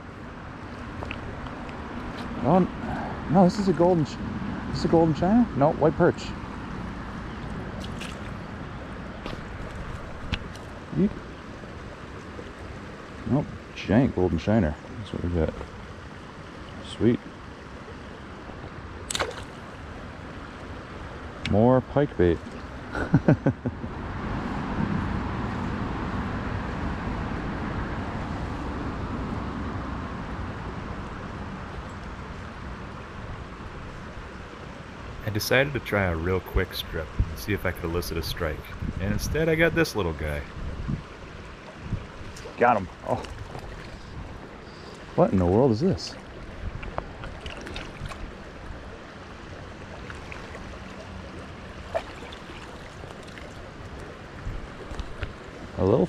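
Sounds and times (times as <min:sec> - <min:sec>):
stream water flowing: 0:00.0 - 0:56.0
road traffic rushing past: 0:01.2 - 0:09.6, 0:23.8 - 0:31.7.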